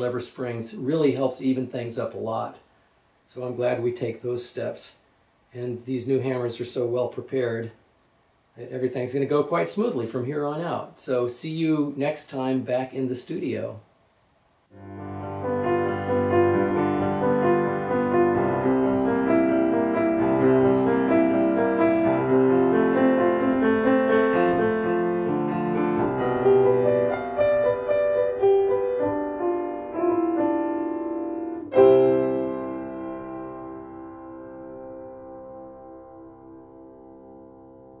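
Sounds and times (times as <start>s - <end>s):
solo piano music: 14.7s - 38.0s.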